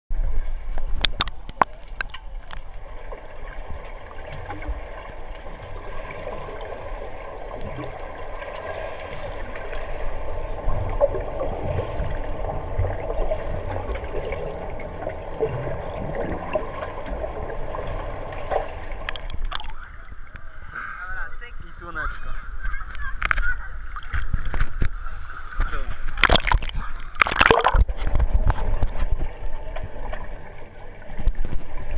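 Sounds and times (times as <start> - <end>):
muffled underwater gurgling: 0.5 - 21.0.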